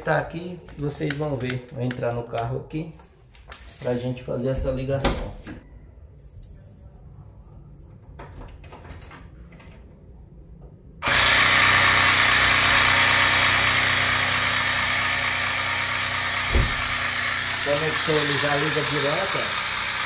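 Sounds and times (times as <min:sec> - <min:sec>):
air compressor motor buzzing: 0:11.0 - 0:20.0
low thump: 0:16.5 - 0:16.9.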